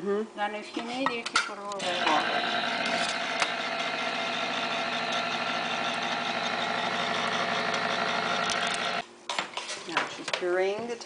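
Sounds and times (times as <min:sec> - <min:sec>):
electric can opener motor hum: 0:01.7 - 0:09.0.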